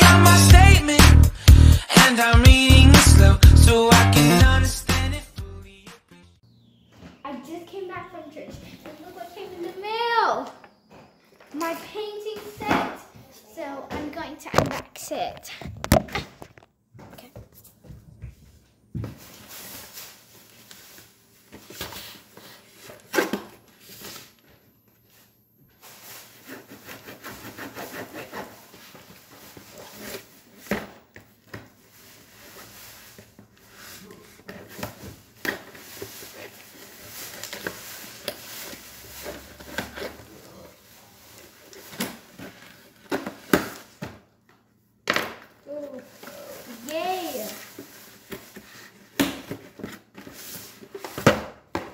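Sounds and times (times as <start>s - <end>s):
knife cutting tape and cardboard: 26.4s - 28.8s.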